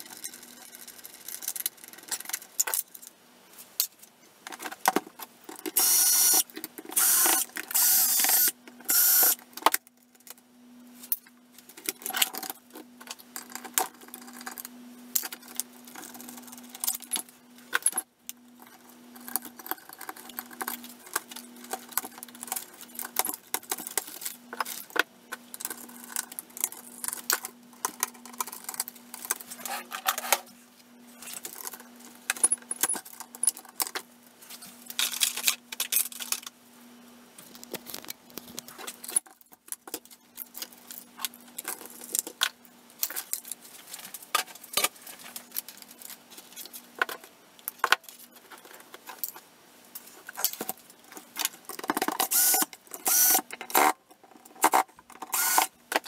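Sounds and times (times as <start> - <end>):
small metal and plastic parts clicking: 0.0 - 3.1, 3.8 - 10.4, 11.1 - 30.4, 34.8 - 36.5, 50.0 - 56.0
faint steady hum: 0.0 - 56.0.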